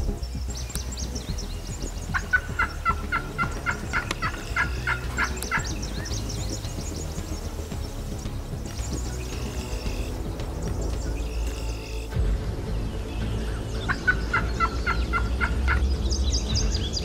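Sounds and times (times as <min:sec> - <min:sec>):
small birds chirping: 0:00.0 - 0:17.0
turkey calling: 0:00.2 - 0:12.2, 0:12.8 - 0:16.8.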